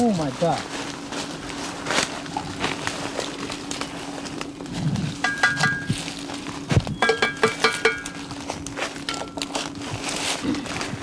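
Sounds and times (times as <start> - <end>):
steps in forest undergrowth: 0.0 - 7.0, 7.9 - 11.0
metal wreckage clinking: 5.2 - 6.0, 7.0 - 8.2.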